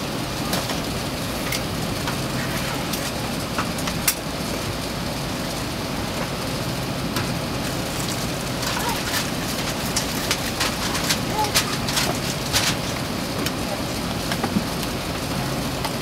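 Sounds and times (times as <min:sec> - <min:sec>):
airplane cabin hum: 0:00.0 - 0:16.0.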